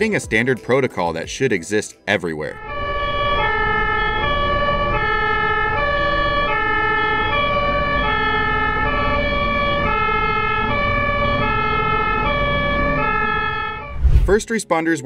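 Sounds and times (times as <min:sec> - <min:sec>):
low rumble of motorway traffic: 0:02.6 - 0:13.9
two-tone ambulance siren: 0:02.6 - 0:14.0.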